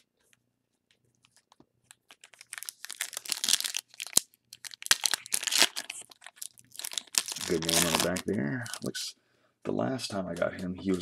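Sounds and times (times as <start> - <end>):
foil pack crinkling and tearing: 1.4 - 8.9.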